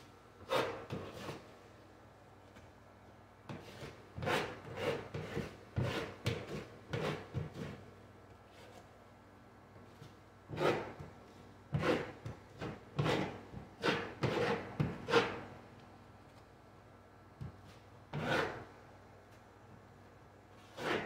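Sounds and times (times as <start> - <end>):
drywall knife scraping: 0.4 - 1.4, 3.5 - 7.8, 10.5 - 11.0, 11.7 - 15.5, 18.1 - 18.7, 20.6 - 21.0.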